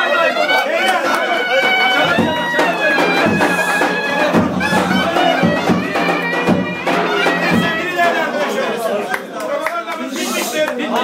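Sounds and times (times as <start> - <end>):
shrill reed wind instrument: 0.0 - 8.4
crowd voices: 0.0 - 11.0.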